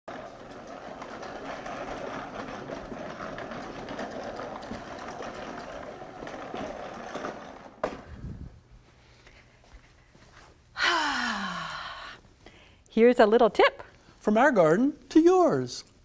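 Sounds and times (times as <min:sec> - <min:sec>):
spreader rattling: 0:00.1 - 0:07.8
wheels and spinner clattering: 0:00.1 - 0:08.5.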